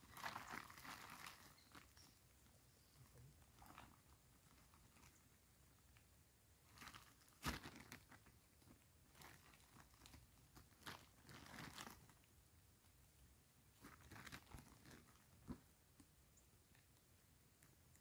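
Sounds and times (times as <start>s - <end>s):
plastic sack rustling: 0.0s - 2.2s, 6.7s - 12.3s, 13.7s - 15.7s
dry bean pods crackling: 0.0s - 6.1s.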